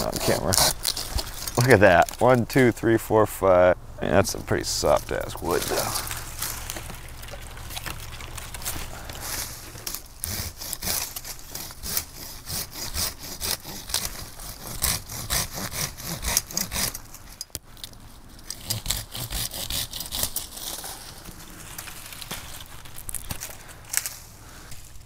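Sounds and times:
hand saw cutting wood: 0.0 - 2.2, 4.8 - 6.9, 7.8 - 17.4, 18.4 - 21.5.

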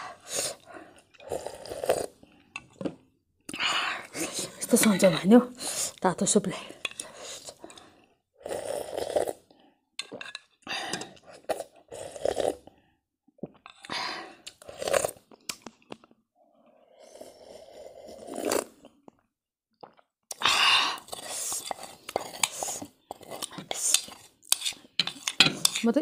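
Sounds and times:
person slurping soup: 0.0 - 6.0, 6.6 - 19.2, 19.8 - 26.0.

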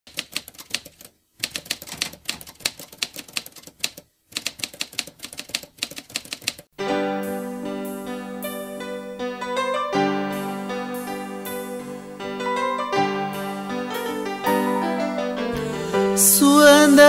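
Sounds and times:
sustained keyboard chords: 6.8 - 17.0.

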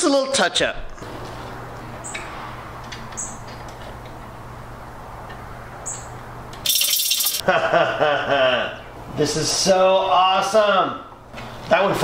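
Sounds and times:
short high chirps: 6.7 - 7.4.

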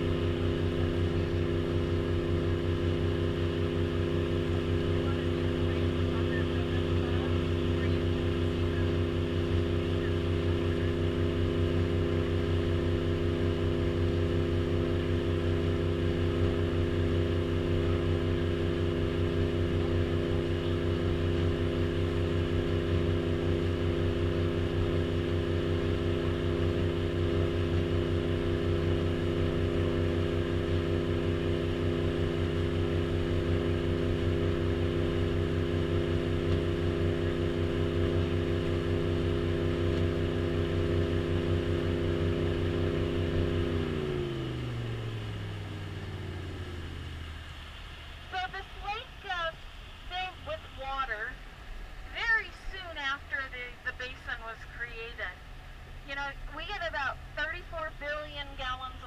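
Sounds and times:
boat engine drone: 0.0 - 59.0.

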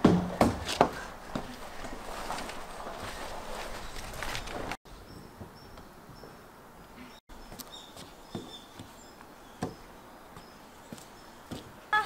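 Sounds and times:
handling rustle: 1.4 - 4.8
small birds chirping: 4.9 - 12.0.

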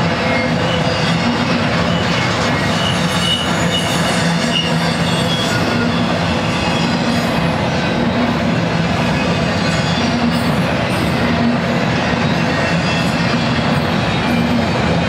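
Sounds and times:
steel wheels rumbling on rail: 0.0 - 15.0
high wheel squeals: 0.2 - 8.2.

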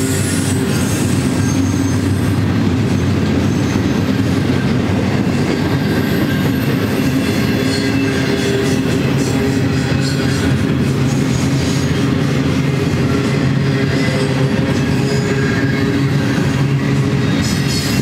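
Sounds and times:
high-pitched wheel squeal: 0.0 - 4.2, 5.4 - 12.2, 13.0 - 18.0
steel train wheels on rail: 0.0 - 18.0.

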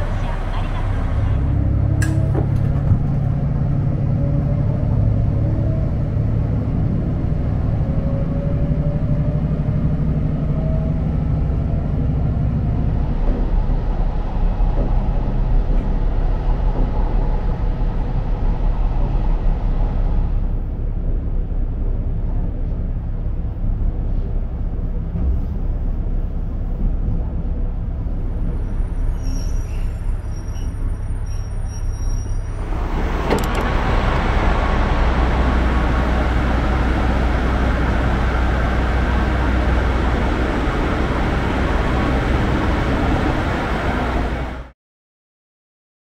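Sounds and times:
train cabin rumble: 0.0 - 44.6
click: 2.0 - 2.2, 33.3 - 33.7.

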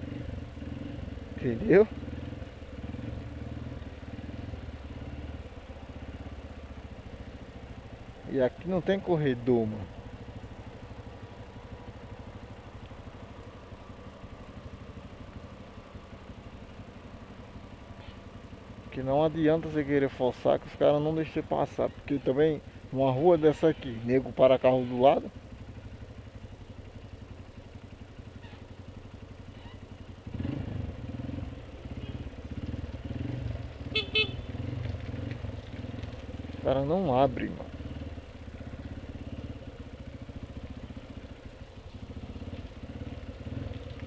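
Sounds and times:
motorcycle engine idling: 0.0 - 44.0
horn beeps: 33.9 - 34.5.

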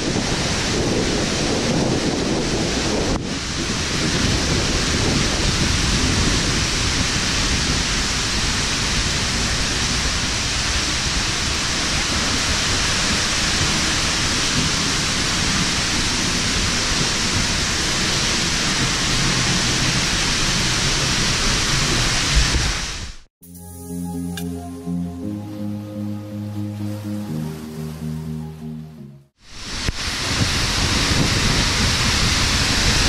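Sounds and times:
waterfall rushing: 24.5 - 33.0.

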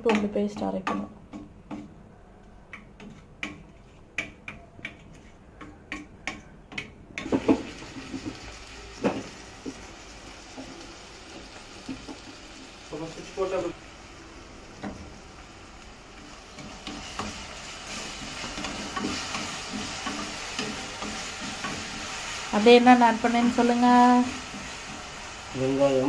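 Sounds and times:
onions sizzling in oil: 7.2 - 26.0.

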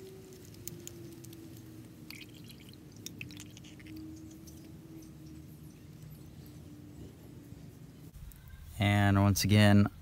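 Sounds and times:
oil dripping into pan: 2.1 - 4.6.

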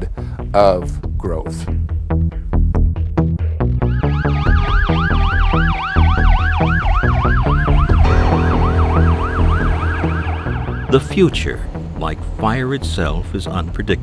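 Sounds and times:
electronic siren fast yelp: 3.8 - 11.0
slower falling siren tone: 3.8 - 11.2.

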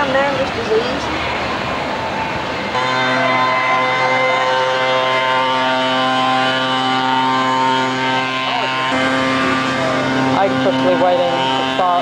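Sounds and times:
steady engine drone: 0.0 - 12.0.

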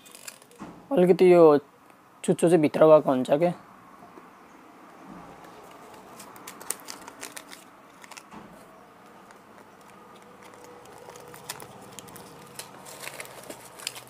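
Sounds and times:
fishing hook packets clicking: 5.7 - 8.3, 9.2 - 14.0.

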